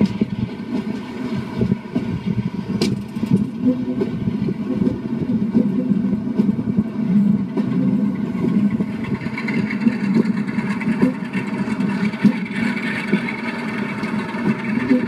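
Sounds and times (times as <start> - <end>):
wind noise: 0.0 - 11.1
diesel locomotive engine drone: 0.0 - 15.0
wheel and rail noise: 0.0 - 15.0.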